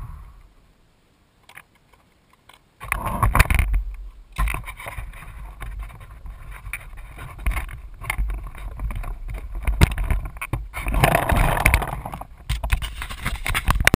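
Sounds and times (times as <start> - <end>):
camera handling knocks and rustles: 4.4 - 14.0.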